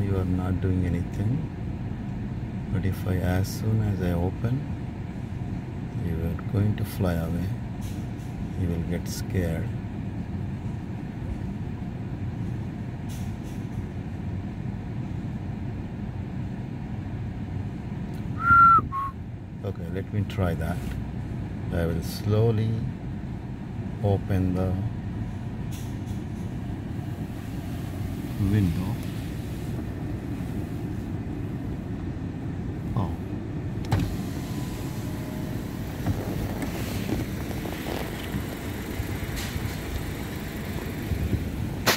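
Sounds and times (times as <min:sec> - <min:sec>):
vehicle rumble: 0:00.0 - 0:41.9
short whistle-like tone: 0:18.4 - 0:19.2
power window motor: 0:33.8 - 0:40.1.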